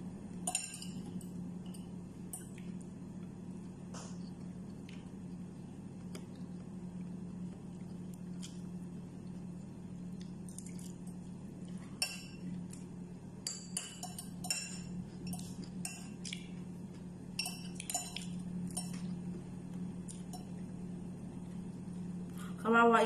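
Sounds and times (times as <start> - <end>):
steady low hum: 0.0 - 23.0
mouth clicks and smacks eating: 15.4 - 16.6.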